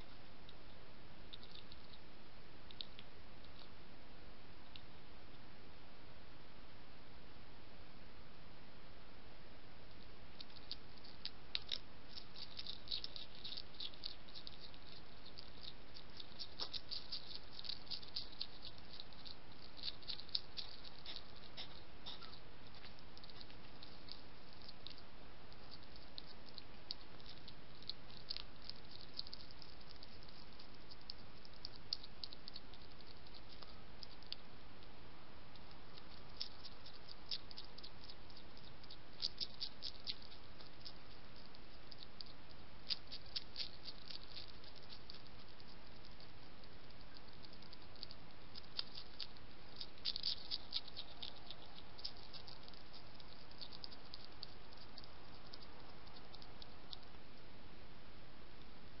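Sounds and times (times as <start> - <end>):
hedgehogs crunching biscuits: 10.4 - 34.9, 35.5 - 57.2.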